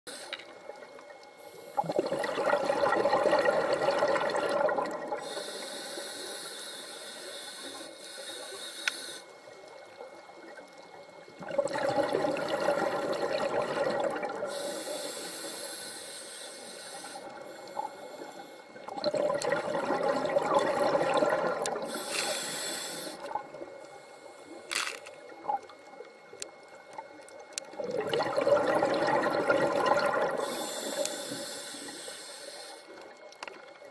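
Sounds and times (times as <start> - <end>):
regulator inhaling hiss: 0.1 - 0.6, 1.4 - 2.0, 5.2 - 9.5, 14.4 - 18.9, 21.7 - 25.0, 30.3 - 33.1
bubbling exhalations underwater: 1.8 - 5.2, 11.4 - 14.5, 18.9 - 22.0, 27.8 - 31.0.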